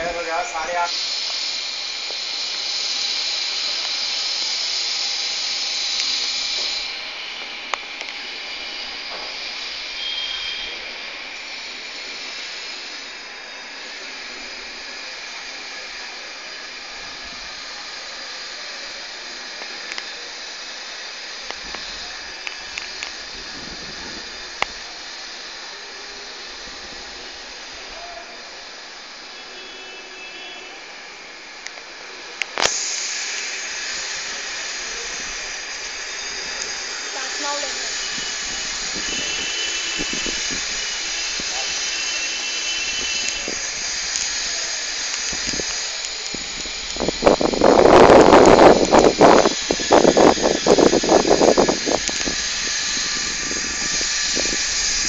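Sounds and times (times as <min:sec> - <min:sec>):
outdoor background hiss: 0:00.0 - 0:55.0
sharp clicks: 0:31.6 - 0:33.6.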